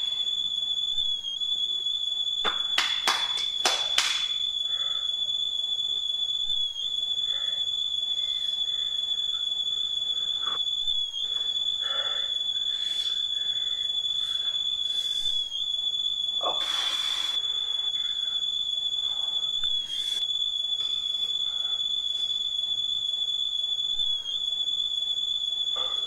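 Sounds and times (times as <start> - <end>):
breathy hisses: 11.2 - 15.4, 16.4 - 18.4, 19.1 - 20.3.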